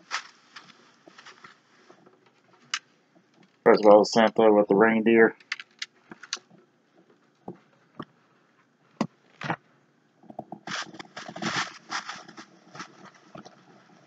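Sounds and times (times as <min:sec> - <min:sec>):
bag rustling: 0:00.0 - 0:02.8, 0:10.7 - 0:13.4.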